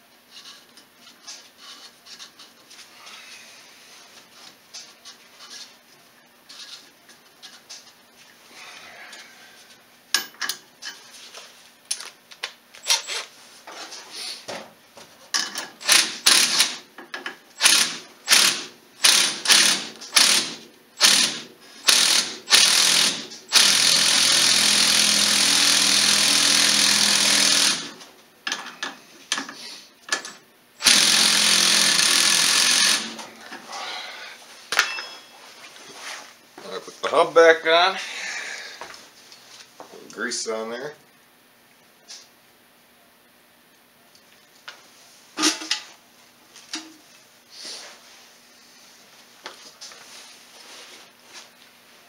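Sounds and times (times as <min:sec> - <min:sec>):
power tool running: 0:15.8 - 0:16.8, 0:17.6 - 0:28.0, 0:30.8 - 0:33.2.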